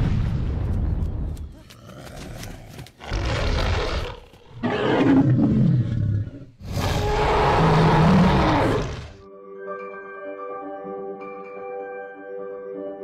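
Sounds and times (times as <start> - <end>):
dinosaur roaring: 1.9 - 9.2
soft chiming music notes: 9.3 - 13.0.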